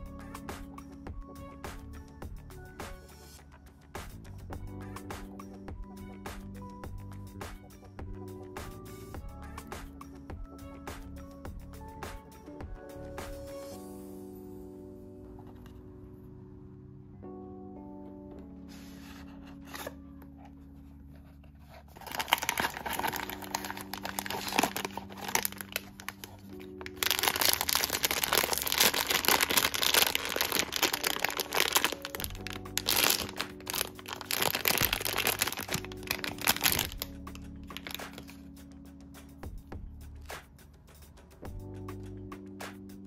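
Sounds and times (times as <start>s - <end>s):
soft background music: 0.0s - 43.0s
foil pouch crinkling and tearing: 21.8s - 38.4s.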